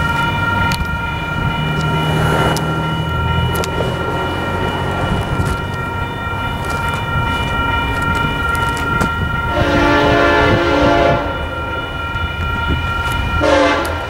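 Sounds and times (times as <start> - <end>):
crossing warning bell ringing: 0.0 - 14.0
train air horn blast: 9.5 - 11.5, 13.4 - 14.0.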